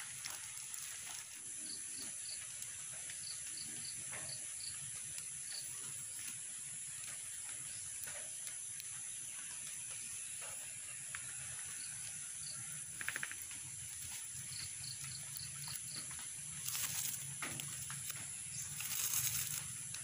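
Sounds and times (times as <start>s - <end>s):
bamboo slats rustling: 0.0s - 1.6s, 13.8s - 20.0s
insects droning: 0.0s - 20.0s.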